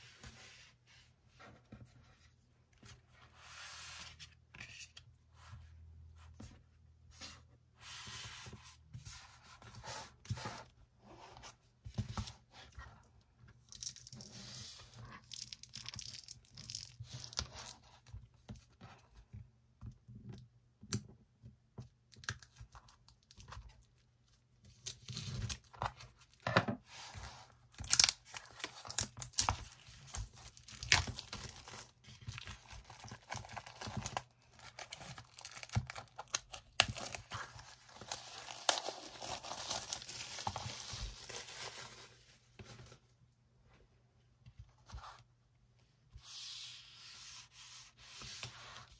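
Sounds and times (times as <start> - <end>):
plastic film crinkling and tearing: 30.5 - 41.8.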